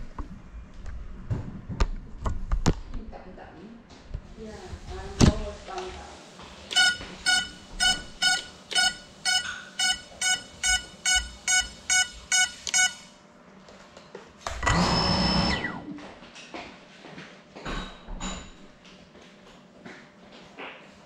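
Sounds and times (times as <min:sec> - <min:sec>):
drone electronics beeping: 0:06.7 - 0:13.2
drone motors whirring: 0:14.6 - 0:16.0.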